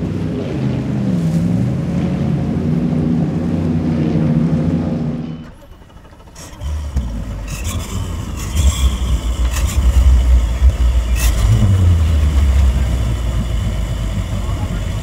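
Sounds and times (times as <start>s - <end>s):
boat engines rumbling idle: 0.0s - 15.0s.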